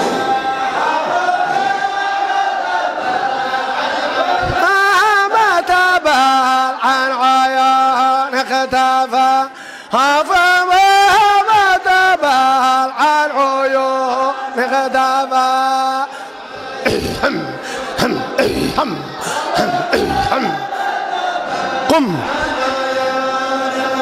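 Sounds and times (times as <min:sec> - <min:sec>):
man chanting: 0:04.4 - 0:16.1, 0:16.8 - 0:20.8, 0:21.8 - 0:24.0.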